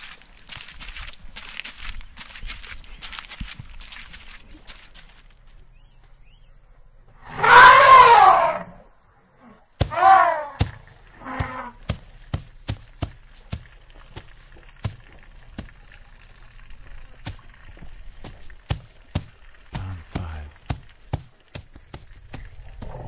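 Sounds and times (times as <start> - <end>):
elephant trumpeting: 7.3 - 8.7, 9.8 - 11.8.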